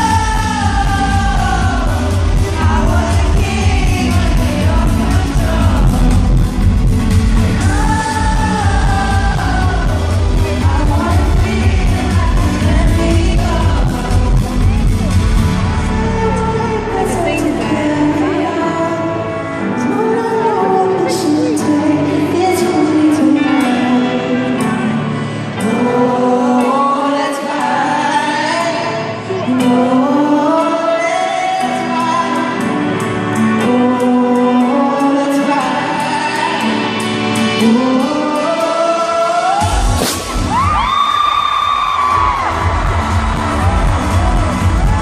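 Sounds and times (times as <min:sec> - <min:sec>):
male vocal singing slow melody: 0:00.0 - 0:40.4
heavy bass beat: 0:41.8 - 0:45.0.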